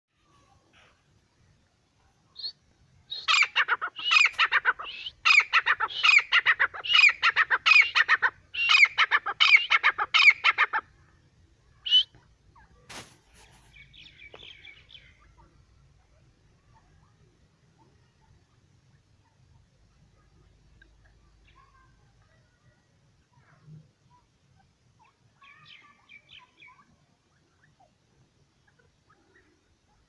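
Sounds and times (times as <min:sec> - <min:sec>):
francolin calling: 0:02.3 - 0:12.9, 0:13.7 - 0:22.6, 0:23.2 - 0:30.0
faint soft chattering: 0:09.1 - 0:30.0.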